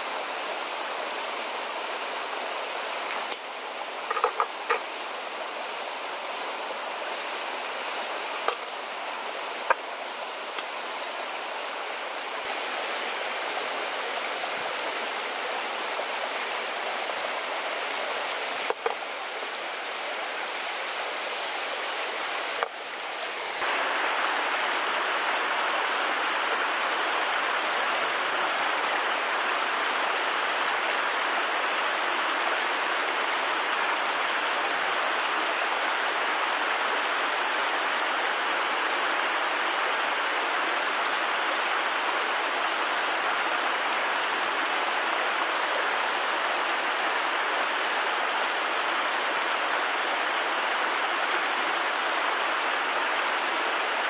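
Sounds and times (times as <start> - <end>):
stream water rushing over rocks: 0.0 - 54.0.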